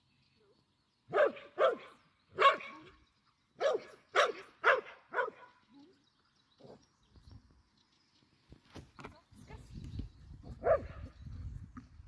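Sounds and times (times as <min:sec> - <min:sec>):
dog barking: 0:01.1 - 0:02.9, 0:03.6 - 0:05.5, 0:10.6 - 0:11.0.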